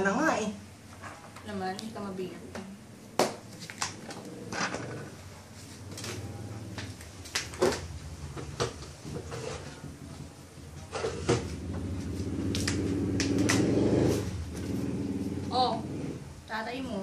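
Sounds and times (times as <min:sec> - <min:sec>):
low hum: 0:02.8 - 0:07.2.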